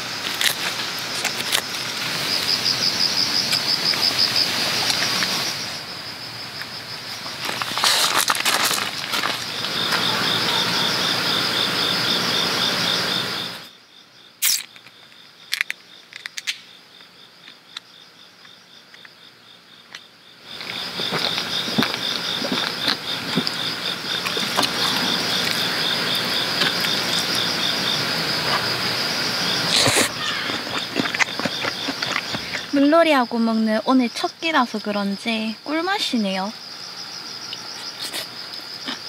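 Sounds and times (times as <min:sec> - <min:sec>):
crickets chirping: 0:00.0 - 0:39.0.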